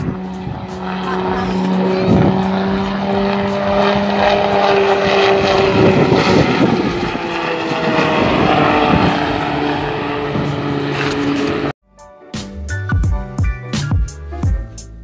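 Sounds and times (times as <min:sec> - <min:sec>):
turboprop aircraft droning past: 0:00.0 - 0:11.8.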